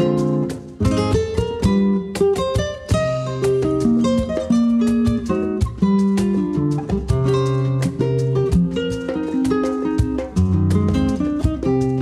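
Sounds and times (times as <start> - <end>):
acoustic guitar playing: 0.0 - 12.0.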